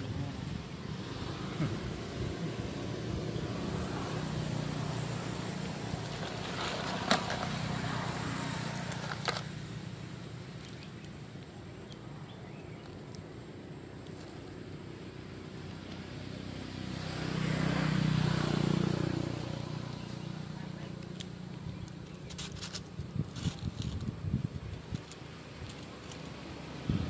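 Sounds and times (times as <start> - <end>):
vehicle engine humming: 0.0 - 27.0.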